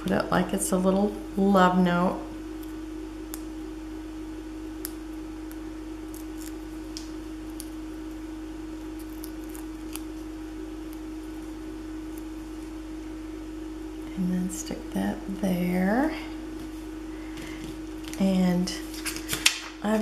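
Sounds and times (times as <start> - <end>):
electrical hum: 0.0 - 20.0
paper clicks and crinkles: 18.8 - 19.8.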